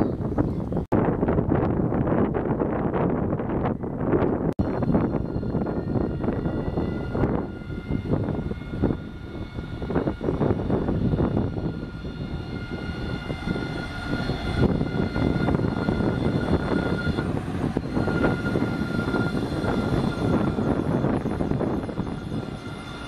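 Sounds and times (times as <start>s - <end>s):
wheels rumbling on rail: 0.0s - 23.0s
electric motor whine: 4.6s - 23.0s.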